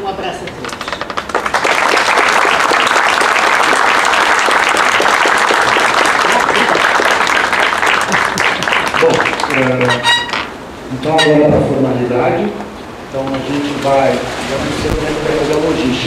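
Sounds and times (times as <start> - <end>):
audience applauding: 0.7 - 10.3.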